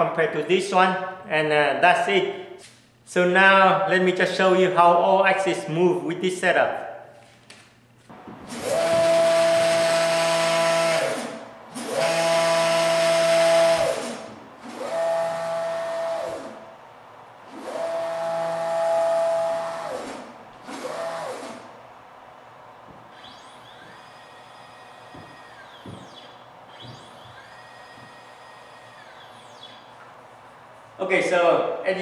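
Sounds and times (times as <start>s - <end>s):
stepper motors whining: 8.2s - 16.8s, 17.4s - 30.7s.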